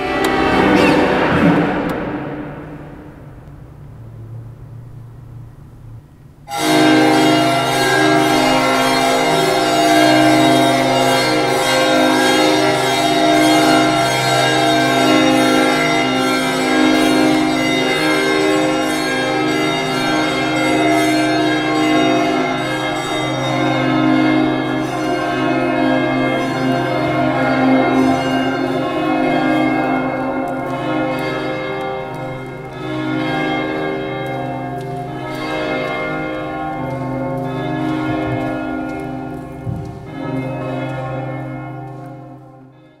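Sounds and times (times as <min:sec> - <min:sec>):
bells ringing: 0:00.0 - 0:02.1, 0:06.5 - 0:43.0
steady low hum: 0:00.0 - 0:06.5.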